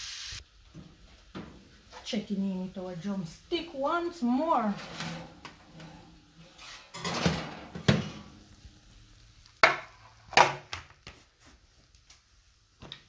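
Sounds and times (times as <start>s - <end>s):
baking pan scraping oven rack: 4.2s - 8.4s
metal clanks: 4.8s - 8.3s.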